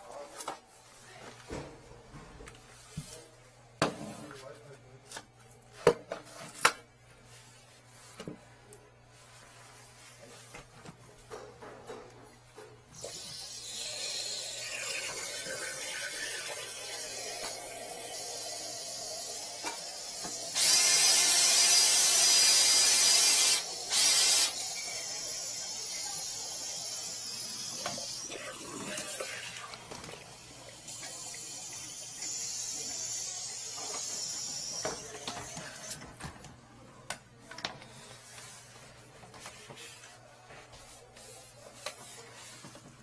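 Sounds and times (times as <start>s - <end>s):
water rushing down sink drain: 13.6s - 19.5s.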